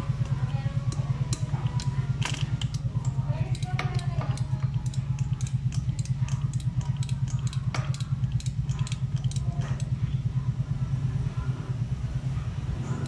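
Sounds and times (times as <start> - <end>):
engine idling: 0.0 - 13.0
wrench ratcheting clicks: 0.2 - 9.9.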